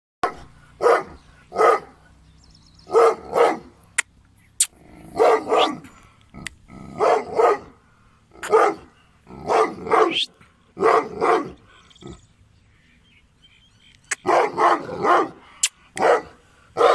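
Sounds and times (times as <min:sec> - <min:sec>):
dog barking: 0:00.2 - 0:02.0, 0:02.9 - 0:03.8, 0:05.1 - 0:05.9, 0:07.0 - 0:07.8, 0:08.4 - 0:11.6, 0:14.2 - 0:15.4, 0:16.0 - 0:16.9.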